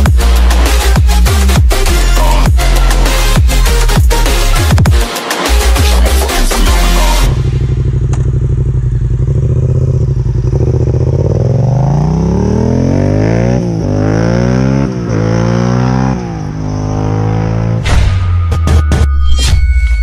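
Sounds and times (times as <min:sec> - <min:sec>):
quad bike engine revving: 0:07.0 - 0:17.8.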